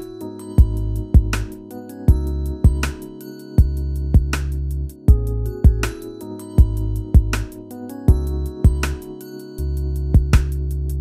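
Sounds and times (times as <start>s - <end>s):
kick drum hits: 0.6s - 1.3s, 2.1s - 2.8s, 3.6s - 4.3s, 5.1s - 6.0s, 6.6s - 7.5s, 8.1s - 8.8s, 10.2s - 10.6s
deep bass: 0.6s - 1.5s, 2.1s - 2.9s, 3.6s - 5.9s, 6.6s - 7.5s, 8.1s - 9.0s, 9.7s - 11.0s.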